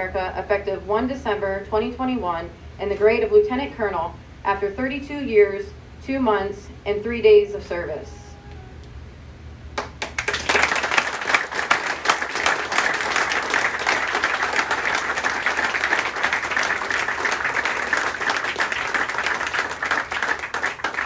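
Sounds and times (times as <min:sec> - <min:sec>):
crowd applauding: 0:09.8 - 0:21.0.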